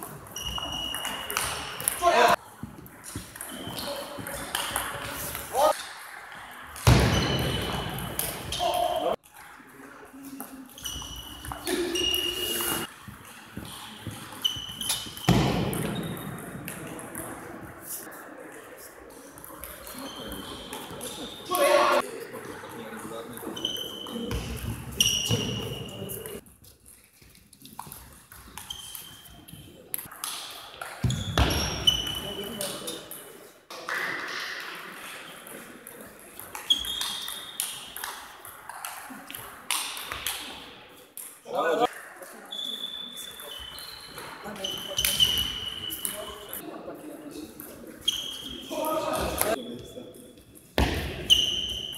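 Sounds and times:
shoes squeaking on floor: 0.0 - 5.8, 6.8 - 9.2, 10.2 - 16.6, 19.6 - 22.0, 23.3 - 29.9, 30.8 - 33.1, 36.5 - 38.0, 42.3 - 46.6, 47.8 - 50.0, 51.0 - 51.9.

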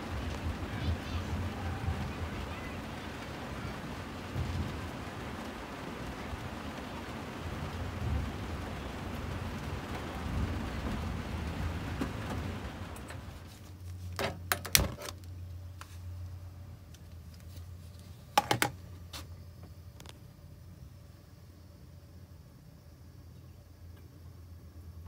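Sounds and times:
steady rain falling: 0.0 - 22.7.

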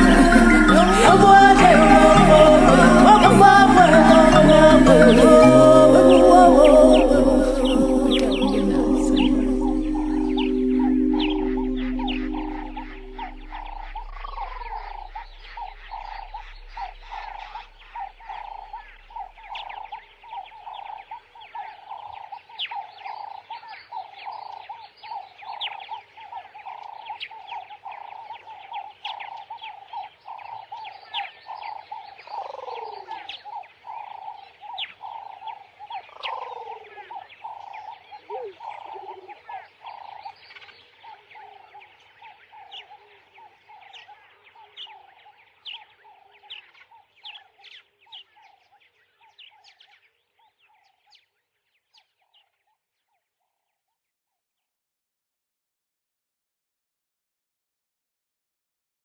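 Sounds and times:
high chirps: 0.0 - 19.7
pulsing croak-like sound: 0.0 - 21.2, 35.0 - 40.3.

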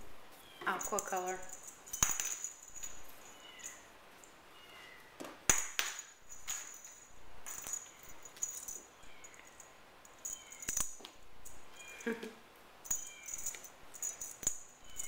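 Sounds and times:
toy wand rattling on floor: 0.7 - 3.9, 5.6 - 11.8, 12.8 - 15.0.

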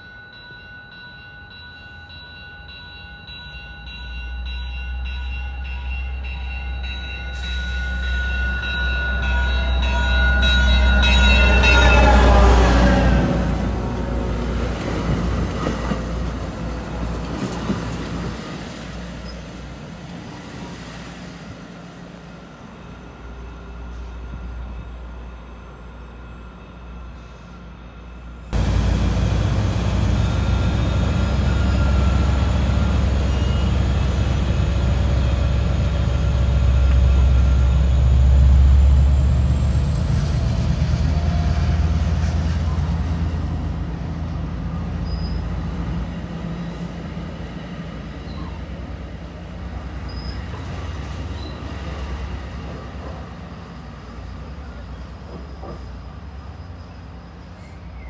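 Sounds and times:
train rumbling past: 0.0 - 58.0
diesel locomotive rumble: 26.9 - 58.0.

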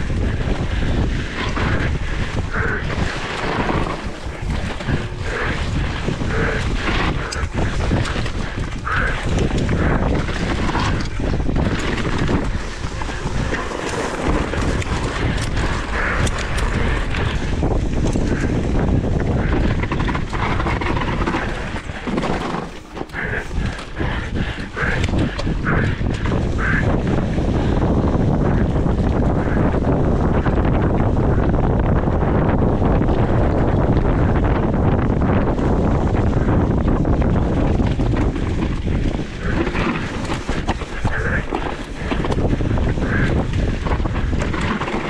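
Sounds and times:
bike rattling: 0.0 - 45.0
wind buffeting microphone: 0.0 - 45.0.

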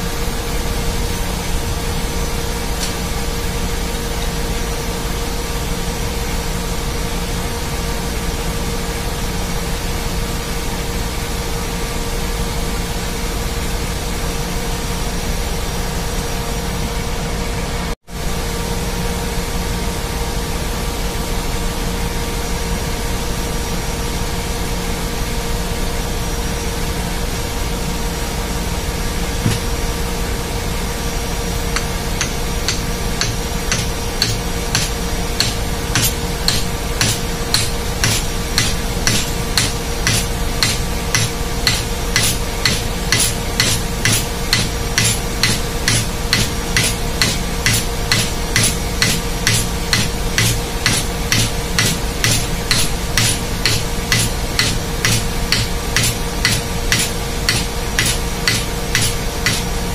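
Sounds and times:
engine-room machinery drone: 0.0 - 59.9
hammer blows on metal plate: 31.8 - 59.8.

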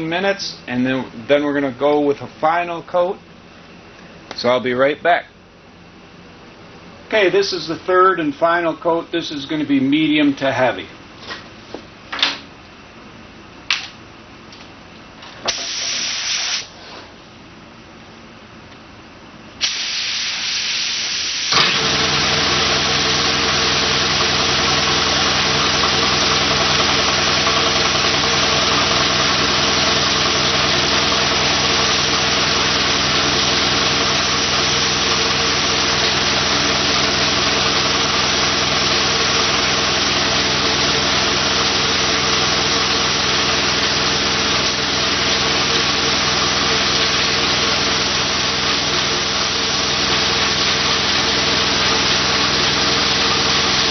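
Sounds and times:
spray gun hissing: 15.5 - 16.7, 19.6 - 21.6.

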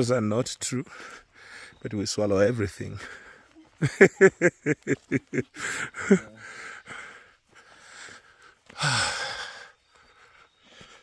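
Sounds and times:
person laughing: 3.7 - 6.5
breathy exhales: 6.4 - 11.0
long sighing breath: 6.5 - 11.0.

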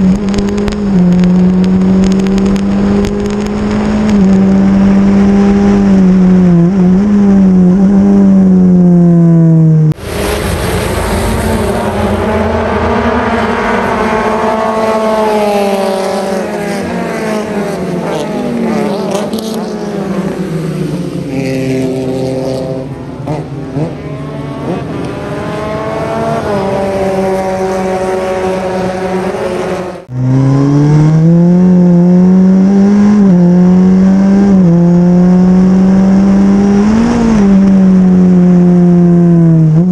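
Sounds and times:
race car engine at high revs: 0.0 - 39.9
race cars passing by: 0.0 - 39.9.

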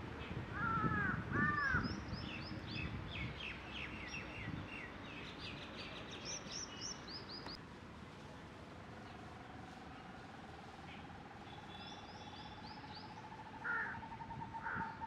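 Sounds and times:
crow cawing: 0.6 - 1.8, 13.6 - 15.0.

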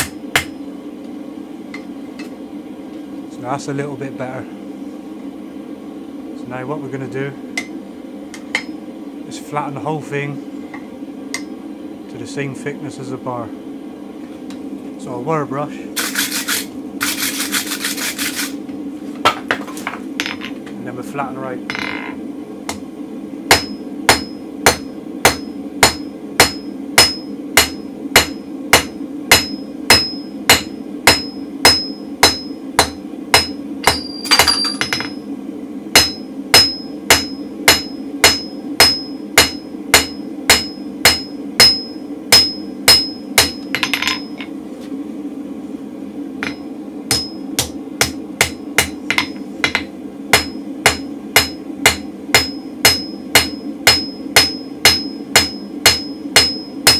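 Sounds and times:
hammer striking steel on anvil: 0.0 - 0.6, 1.7 - 2.3, 8.4 - 8.8, 11.3 - 11.5, 23.5 - 35.2, 36.0 - 44.5, 46.4 - 56.9.

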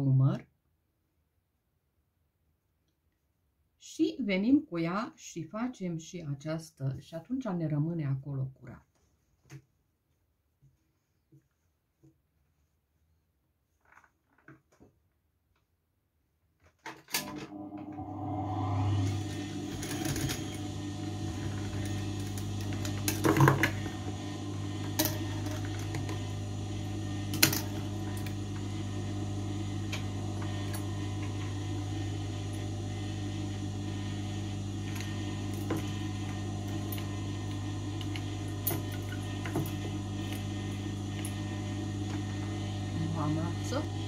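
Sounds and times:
sewing machine running: 17.2 - 44.0.

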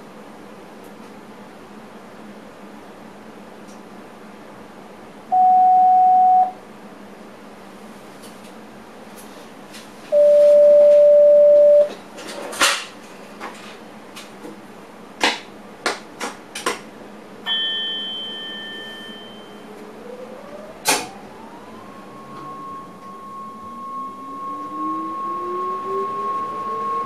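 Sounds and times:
train traction drive whine: 17.0 - 27.0
short high chime: 17.5 - 19.7
loud electronic beep: 22.0 - 27.0.

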